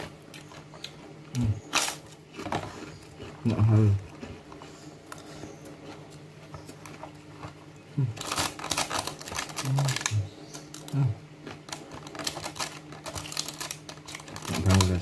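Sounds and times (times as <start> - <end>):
man chewing food: 0.0 - 15.0.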